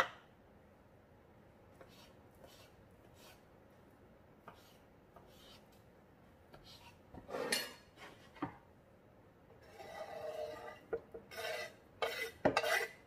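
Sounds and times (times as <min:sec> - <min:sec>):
knife scraping wooden board: 0:01.8 - 0:03.5, 0:04.5 - 0:05.7, 0:06.5 - 0:08.4, 0:09.6 - 0:13.0.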